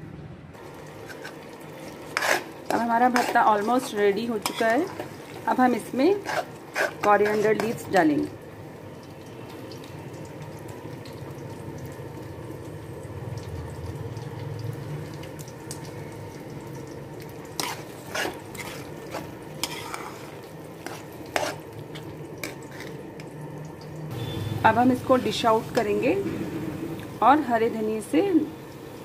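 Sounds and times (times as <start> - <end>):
food sizzling in a pan: 0.6 - 29.0
metal spoon scraping a pan: 1.0 - 8.0, 17.6 - 23.0.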